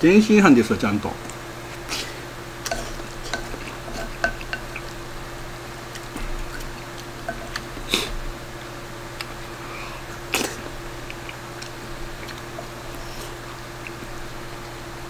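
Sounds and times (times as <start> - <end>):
steady low hum: 0.0 - 15.0
wet chewing: 1.2 - 8.3, 9.0 - 15.0
wooden spoon scraping a bowl: 2.7 - 4.9.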